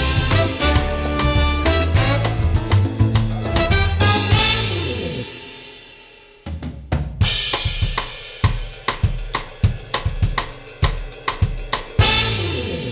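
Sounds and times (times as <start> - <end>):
background music: 0.0 - 5.6
drum kit beat: 0.0 - 12.9.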